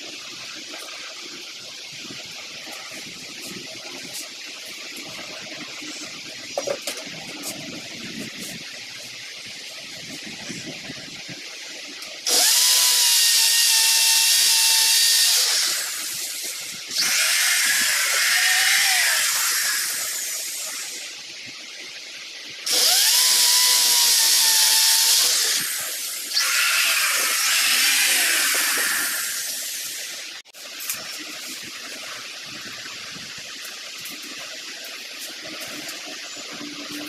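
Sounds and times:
electric drill boring into wall: 12.2 - 21.1, 22.6 - 30.4.

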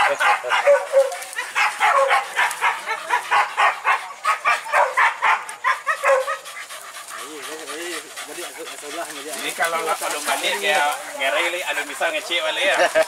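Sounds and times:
dog yelping: 0.0 - 9.5.

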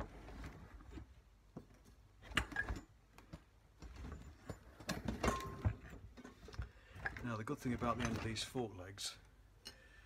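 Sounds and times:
metal tools clicking and knocking: 2.2 - 7.2.

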